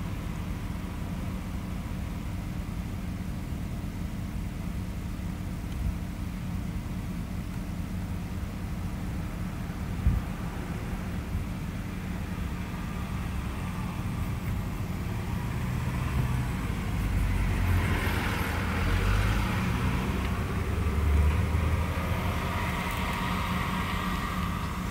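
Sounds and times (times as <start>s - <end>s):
road and engine noise in vehicle: 0.0s - 24.9s
fire engine passing: 9.6s - 24.9s.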